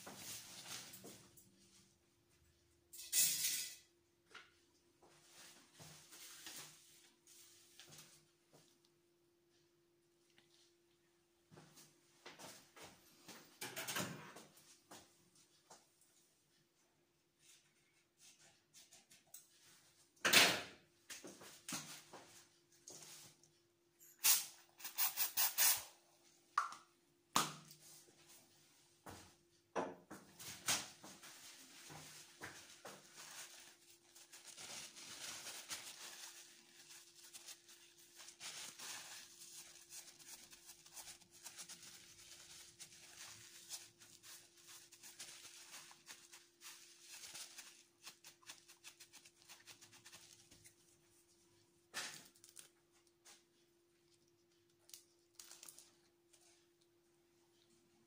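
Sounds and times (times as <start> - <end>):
aerosol spray hissing: 24.3 - 25.8
gauze swab rustling: 30.6 - 51.1.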